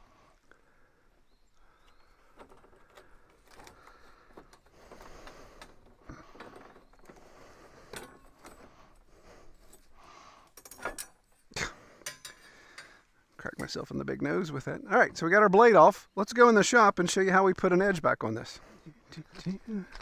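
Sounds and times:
metal blade clinking and rattling: 10.6 - 12.9.

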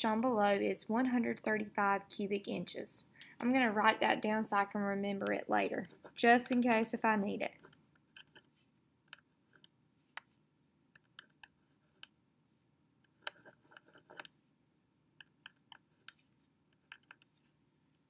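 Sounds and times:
pen writing on paper: 13.1 - 14.3.

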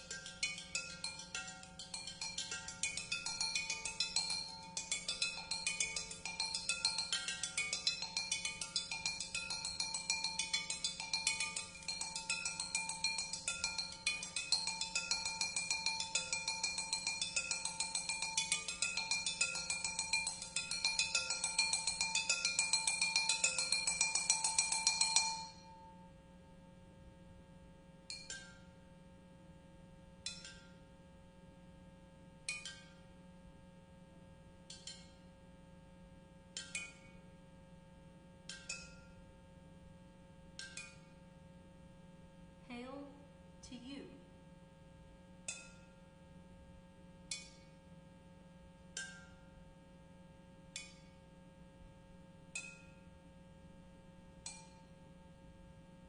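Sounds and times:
flowerpots struck as percussion: 0.0 - 26.0.

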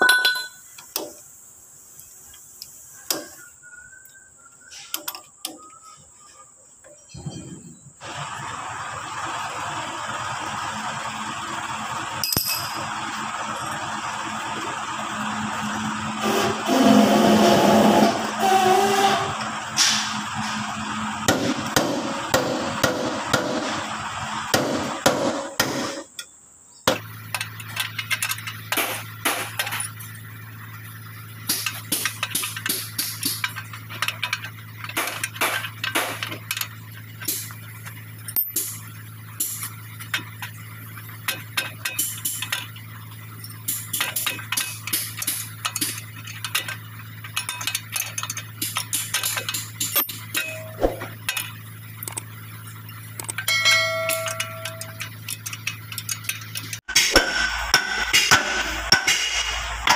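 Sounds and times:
wrench clinking against bolts: 0.0 - 1.1, 12.2 - 12.8, 43.4 - 52.3, 52.9 - 56.8.

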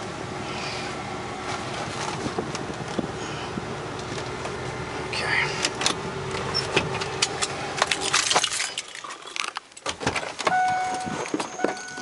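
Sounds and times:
van engine idling: 0.0 - 8.2
car door opening: 9.8 - 12.0
electronic warning tone: 10.5 - 12.0.

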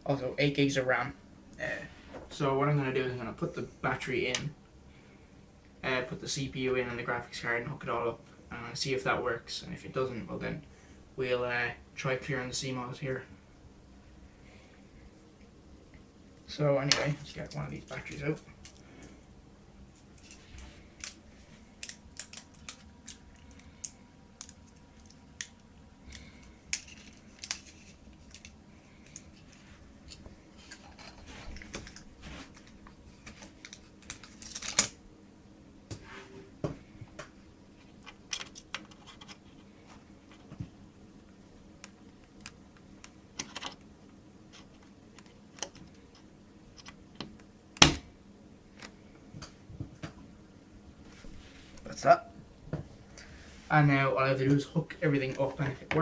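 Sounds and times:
packaging clicks and crackles: 21.8 - 29.6.

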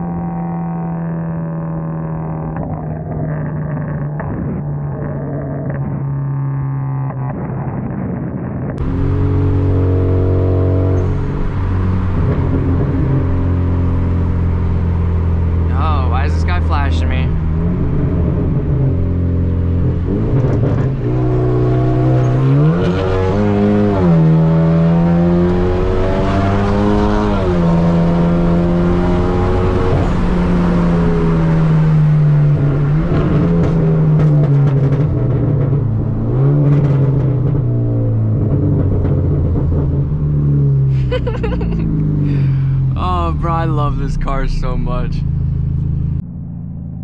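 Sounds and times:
car engine accelerating hard: 0.0 - 47.0.

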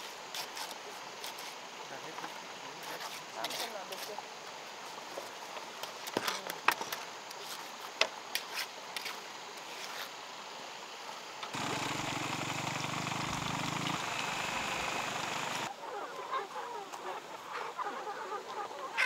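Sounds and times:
steady rushing noise: 11.6 - 15.7.

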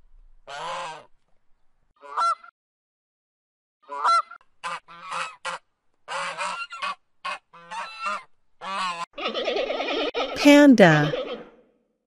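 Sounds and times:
geese honking: 3.9 - 10.1.

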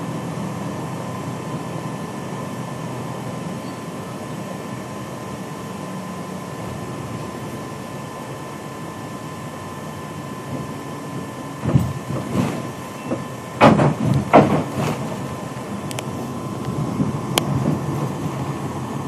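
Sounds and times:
vehicle engine and road noise: 0.0 - 19.0
vehicle body knocks and rattles: 11.6 - 15.2.

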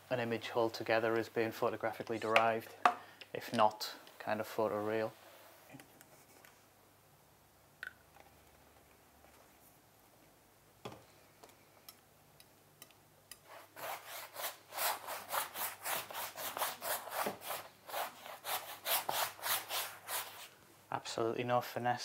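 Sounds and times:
rag scrubbing on canvas: 13.5 - 20.5.

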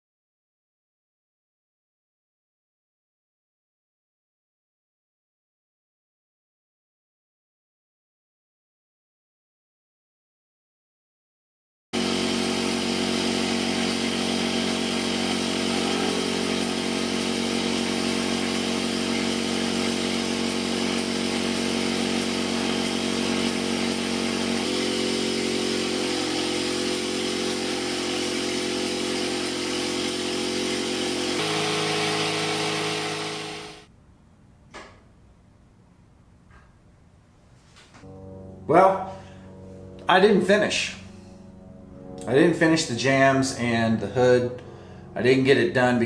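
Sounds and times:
spray gun air hiss: 12.0 - 33.8
air compressor running: 12.0 - 33.9, 38.0 - 42.9, 44.5 - 45.4.

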